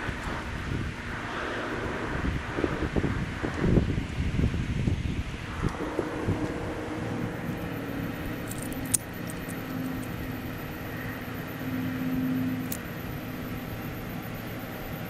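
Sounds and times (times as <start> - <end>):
steady low hum: 0.0 - 15.0
sharp clicks: 8.2 - 10.2.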